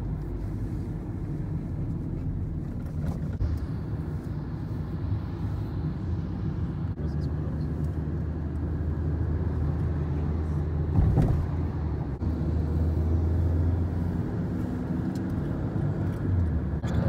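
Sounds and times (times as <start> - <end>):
car cabin road and engine noise: 0.0 - 17.0.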